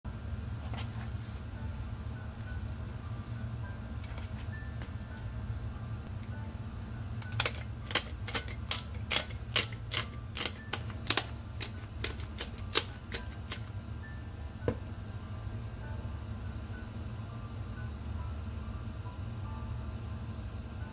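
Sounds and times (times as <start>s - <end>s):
grinder clicking: 7.2s - 13.6s.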